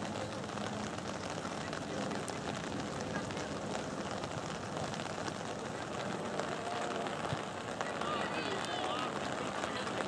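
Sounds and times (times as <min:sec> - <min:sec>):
outdoor background noise: 0:00.0 - 0:10.0.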